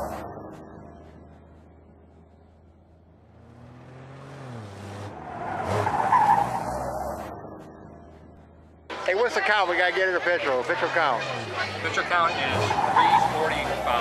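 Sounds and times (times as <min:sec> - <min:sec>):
car driving past: 0:02.6 - 0:08.3.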